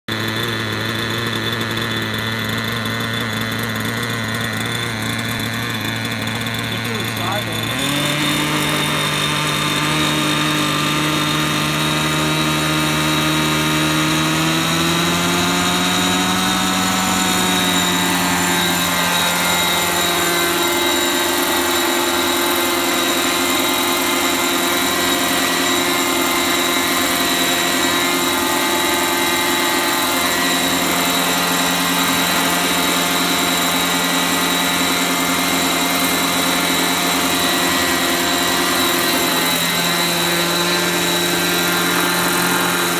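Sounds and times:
model helicopter engine whine: 0.0s - 42.9s.

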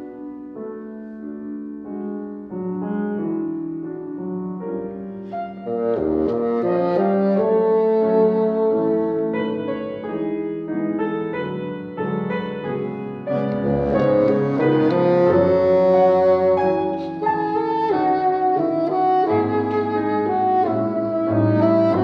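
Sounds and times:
piano accompaniment: 0.0s - 22.0s
bassoon melody: 5.6s - 10.4s, 13.3s - 22.0s.

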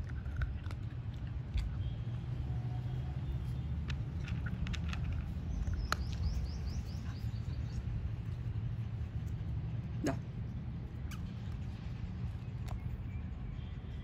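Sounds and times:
low background rumble: 0.0s - 14.0s
bird chirping: 5.5s - 7.9s.

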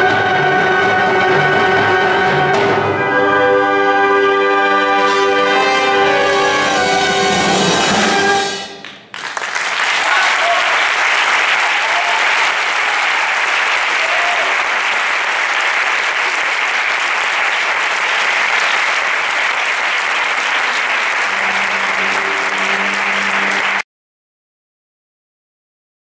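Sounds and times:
audience applauding: 8.8s - 23.8s.

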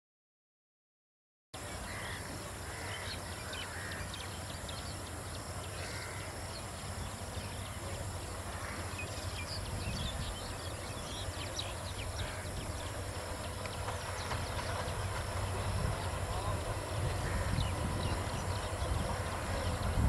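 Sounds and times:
low background rumble: 4.2s - 20.0s.

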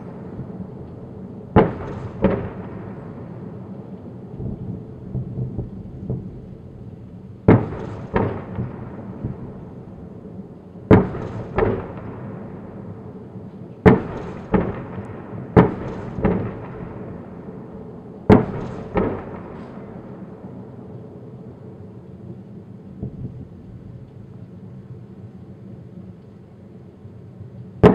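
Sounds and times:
distant artillery booms: 0.0s - 3.6s, 7.4s - 10.2s, 10.9s - 12.9s, 13.8s - 20.8s
background noise: 0.0s - 27.9s.

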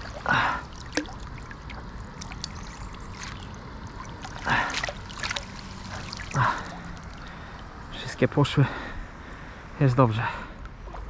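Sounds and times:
water splash: 0.0s - 7.7s
water sloshing and dripping: 0.0s - 8.1s, 10.6s - 11.0s.

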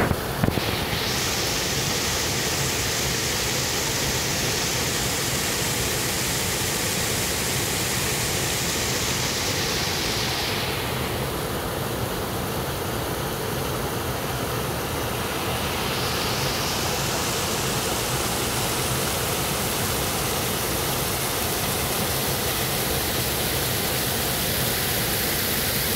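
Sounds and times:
water rushing over rock ledges: 12.7s - 25.9s.

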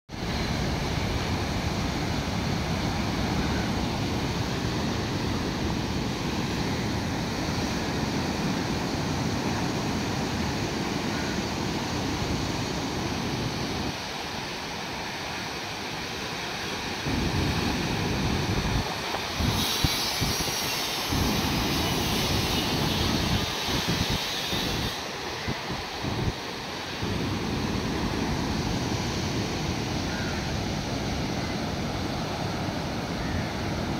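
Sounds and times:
waves breaking on rocky shore: 0.1s - 33.9s
wind rumble on microphone: 17.0s - 26.4s.

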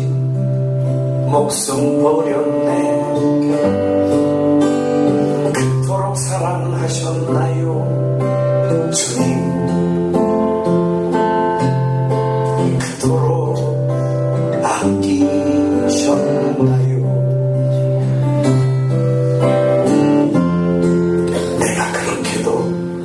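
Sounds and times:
man singing: 0.0s - 0.4s, 1.2s - 4.3s, 5.4s - 10.0s, 12.4s - 18.0s, 21.2s - 23.0s
acoustic guitar strumming: 0.0s - 23.0s.

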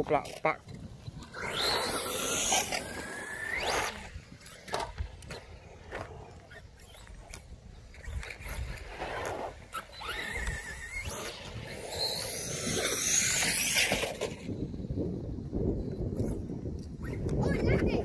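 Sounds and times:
electric motor whining: 1.0s - 14.4s.

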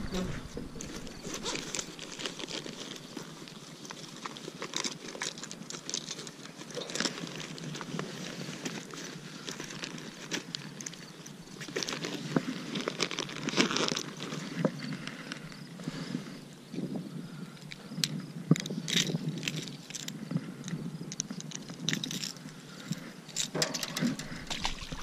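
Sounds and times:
clothing rustling: 23.6s - 25.0s.

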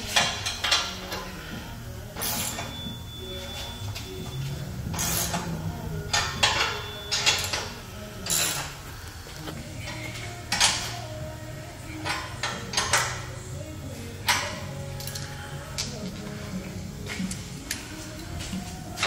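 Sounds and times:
wrench clicking on bolts: 0.1s - 1.2s, 9.8s - 11.0s, 12.0s - 13.3s, 14.2s - 16.2s.

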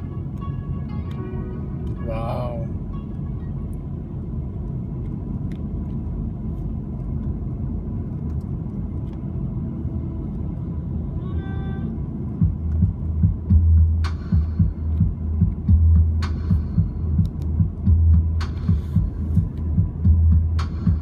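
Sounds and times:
car road and engine rumble: 0.0s - 21.0s
heavy low thumps: 12.3s - 21.0s.

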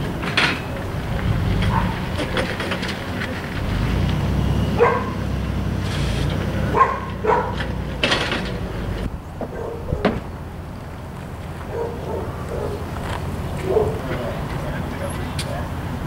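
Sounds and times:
dog barking: 1.7s - 2.0s, 4.8s - 5.2s, 6.7s - 7.6s, 9.5s - 10.2s, 11.7s - 12.9s, 13.6s - 14.1s.

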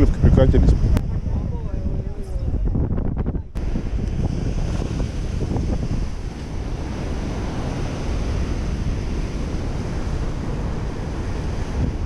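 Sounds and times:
wind buffeting microphone: 0.0s - 12.0s
breaking sea surf: 3.6s - 12.0s.

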